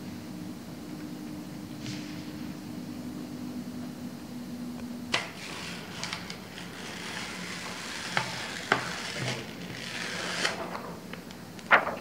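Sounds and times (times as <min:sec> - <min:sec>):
plastic mat and paper rustling: 0:05.4 - 0:12.0.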